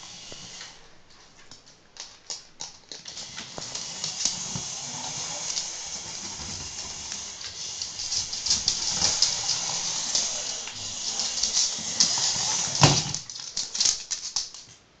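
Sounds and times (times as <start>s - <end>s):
dog scuffling among toys: 3.0s - 14.7s.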